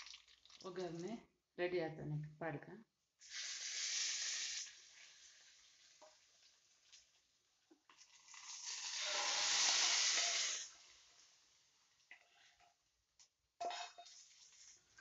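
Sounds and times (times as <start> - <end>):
hot oil sizzling: 0.0 - 1.0, 3.2 - 12.7, 13.6 - 15.0.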